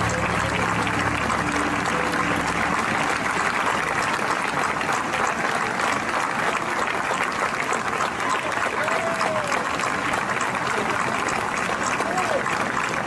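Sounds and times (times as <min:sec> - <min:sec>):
dance music: 0:00.0 - 0:03.6
audience applauding: 0:00.0 - 0:13.0.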